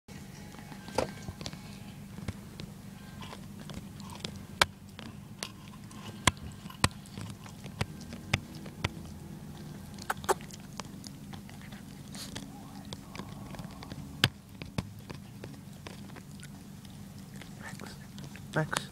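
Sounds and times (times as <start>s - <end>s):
low hum: 0.1s - 18.9s
dog chewing seatbelt: 0.5s - 18.9s.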